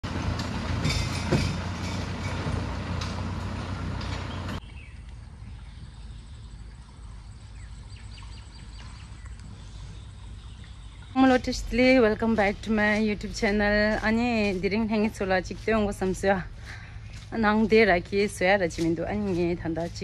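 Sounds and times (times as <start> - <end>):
vehicle engine pulling away: 0.0 - 18.8.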